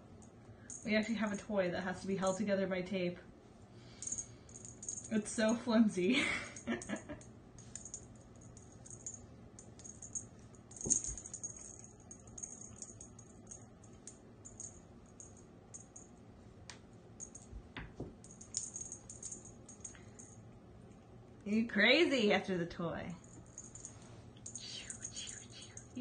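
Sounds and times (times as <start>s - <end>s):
cat toy rattling and rustling: 4.0s - 5.6s, 7.6s - 16.0s, 17.2s - 20.4s, 23.2s - 26.0s.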